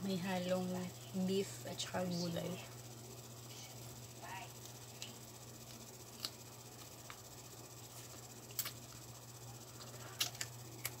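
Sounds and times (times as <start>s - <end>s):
steady low hum: 0.0s - 11.0s
person chewing food: 4.6s - 7.2s, 7.9s - 9.1s, 9.7s - 11.0s.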